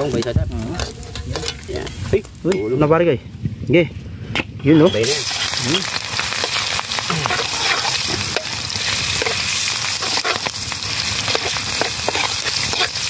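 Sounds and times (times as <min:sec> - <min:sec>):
hot oil sizzling in a wok: 0:04.8 - 0:13.0
metal spatula scraping wok: 0:04.8 - 0:13.0.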